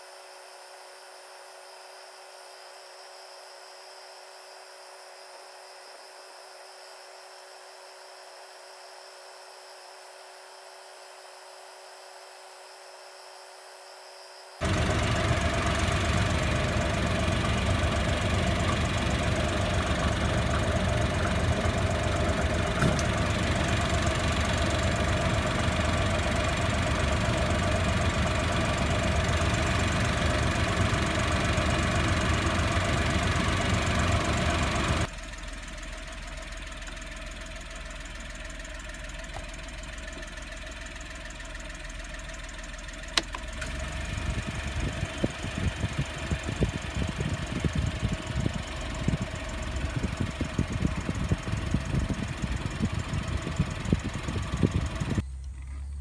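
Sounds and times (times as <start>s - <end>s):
engine running: 14.6s - 56.0s
steady whine: 14.6s - 56.0s.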